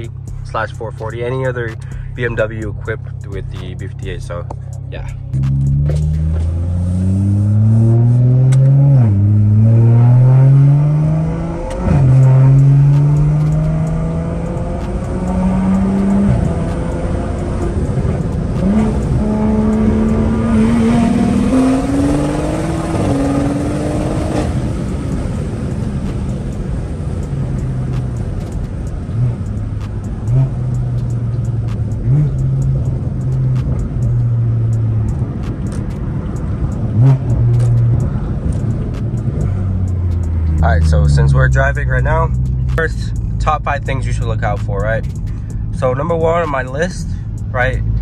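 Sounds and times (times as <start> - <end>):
car engine accelerating through gears: 0.0 - 48.0.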